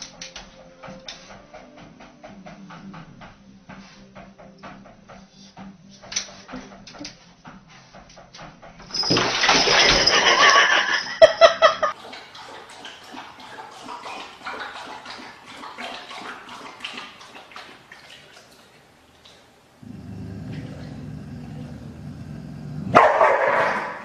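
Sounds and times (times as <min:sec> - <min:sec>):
water splashing in bathtub: 0:08.9 - 0:24.0.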